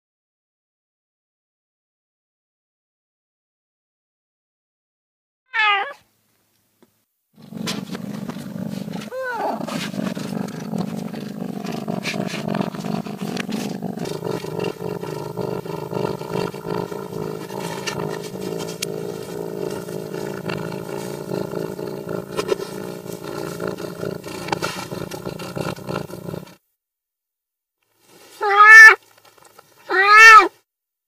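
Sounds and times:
cat growling yowl: 0:05.5 - 0:06.0, 0:07.4 - 0:26.6, 0:28.4 - 0:29.0, 0:29.8 - 0:30.6.

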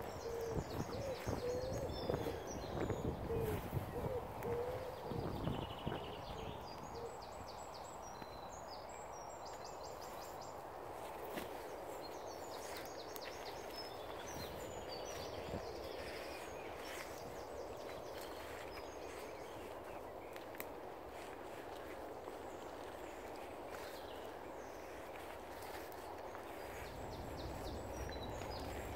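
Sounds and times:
footsteps through long grass: 0:00.0 - 0:28.9
songbirds singing: 0:00.0 - 0:28.9
pigeon cooing: 0:00.2 - 0:02.5, 0:03.2 - 0:05.5.

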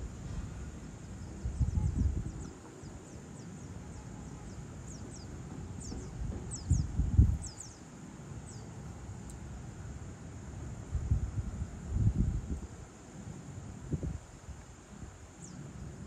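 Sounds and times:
wind buffeting microphone: 0:00.0 - 0:03.1, 0:04.9 - 0:07.8, 0:10.8 - 0:12.9, 0:13.8 - 0:16.0
soft outdoor hiss: 0:00.0 - 0:16.0
birds chirping: 0:01.2 - 0:07.9.

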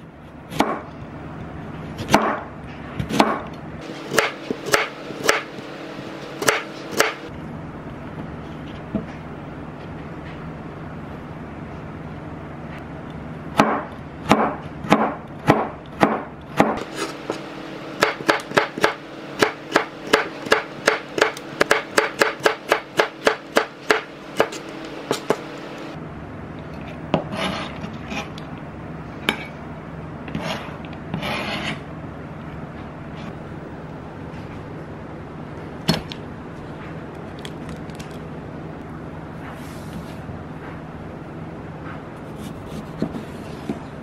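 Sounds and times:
knife chopping on cutting board: 0:00.5 - 0:00.9, 0:02.0 - 0:05.6, 0:06.4 - 0:07.3, 0:13.6 - 0:25.6.

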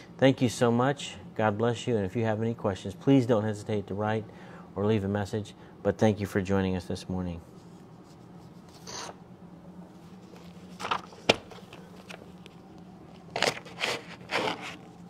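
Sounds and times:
faint steady hum: 0:00.0 - 0:15.0
rustling and scraping handling noise: 0:07.4 - 0:09.2, 0:09.8 - 0:15.0.

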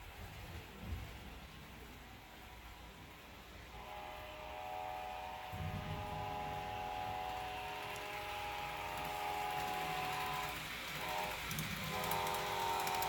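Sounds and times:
model train horn chord: 0:03.7 - 0:13.0.

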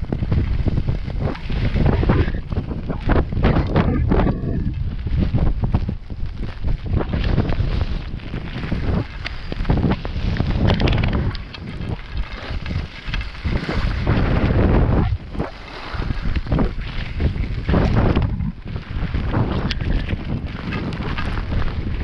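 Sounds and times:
wind buffeting microphone: 0:00.0 - 0:22.0
ski edges scraping snow: 0:00.2 - 0:22.0.

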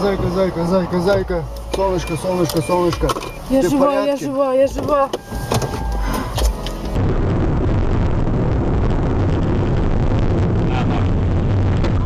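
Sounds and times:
vehicle road and engine noise: 0:00.0 - 0:08.2.

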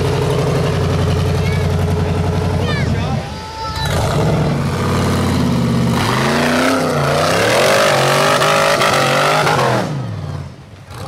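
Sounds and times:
engine revving hard: 0:03.8 - 0:11.0.

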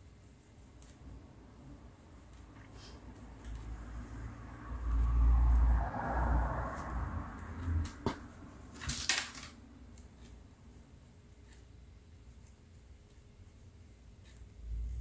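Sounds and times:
soft yarn rustle: 0:09.9 - 0:15.0.

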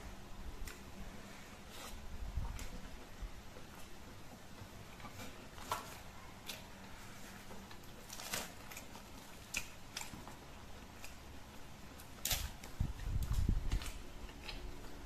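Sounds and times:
person chewing: 0:13.6 - 0:15.0.

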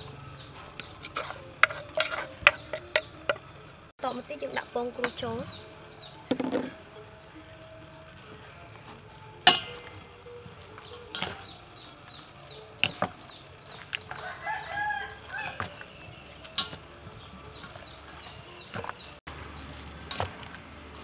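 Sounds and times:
small birds chirping: 0:00.0 - 0:21.0
wooden utensils knocking metal bowl: 0:00.8 - 0:03.5, 0:06.3 - 0:06.8, 0:08.9 - 0:21.0
rooster crowing: 0:14.1 - 0:15.8.

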